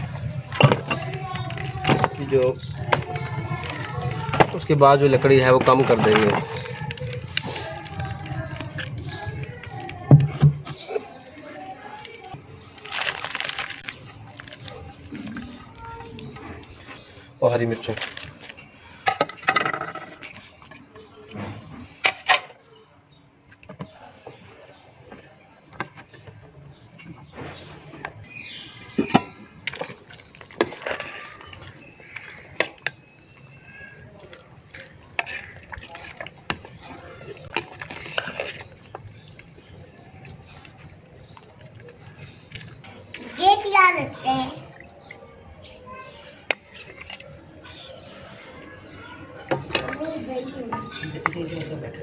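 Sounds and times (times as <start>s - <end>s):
broth boiling: 0.0s - 19.1s, 23.0s - 45.7s
broth bubbling: 29.6s - 43.2s.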